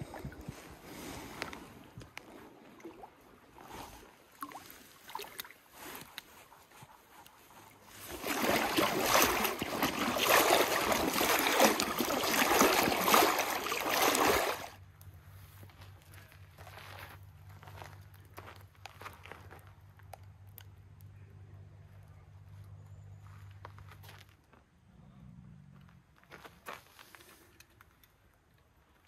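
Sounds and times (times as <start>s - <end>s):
water splashing and churning: 0.0s - 6.0s, 7.7s - 14.8s
faint small splashes and knocks: 4.3s - 6.1s, 8.0s - 14.8s.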